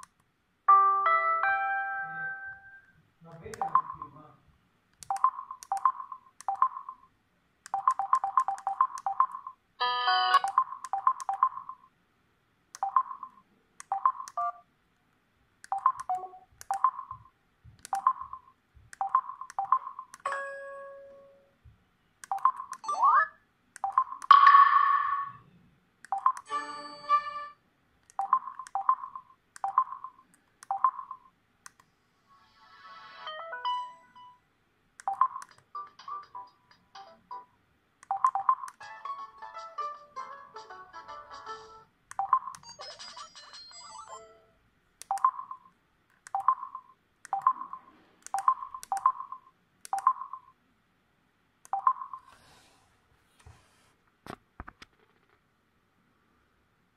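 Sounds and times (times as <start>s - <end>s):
phone key beeps: 3.6s - 4.2s, 5.0s - 7.0s, 7.7s - 9.5s, 10.3s - 11.8s, 12.8s - 14.6s, 15.7s - 17.2s, 17.9s - 18.4s, 19.0s - 20.4s, 22.2s - 23.2s, 23.8s - 24.4s, 26.1s - 26.5s, 28.1s - 31.2s, 35.0s - 35.6s, 38.0s - 38.8s, 42.1s - 42.7s, 45.0s - 45.6s, 46.3s - 50.5s, 51.7s - 52.3s
phone preview tones: 3.6s - 4.2s, 5.1s - 7.0s, 7.8s - 11.8s, 12.8s - 14.7s, 15.7s - 17.3s, 17.9s - 21.4s, 22.3s - 25.4s, 28.2s - 31.3s, 35.0s - 36.6s, 38.1s - 38.7s, 45.1s - 45.7s, 46.4s - 50.5s, 51.7s - 52.3s.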